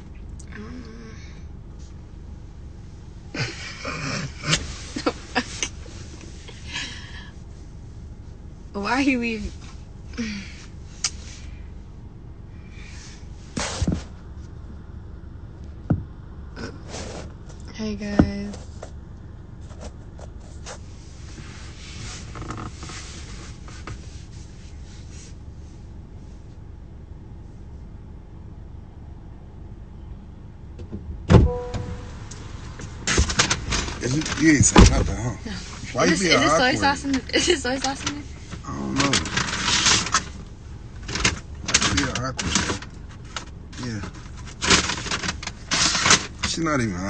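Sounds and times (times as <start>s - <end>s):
car cabin rumble: 0.0s - 47.0s
muffled voice: 34.0s - 37.4s, 38.0s - 39.4s.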